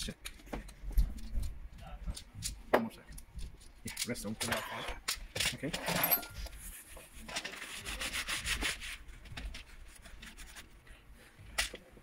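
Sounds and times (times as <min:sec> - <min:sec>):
scratchy rubbing on a keyboard: 0:06.6 - 0:10.8.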